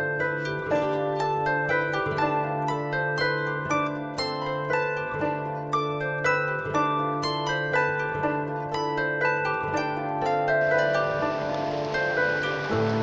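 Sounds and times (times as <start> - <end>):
plucked string music: 0.0 - 13.0
steady hiss: 10.4 - 13.0.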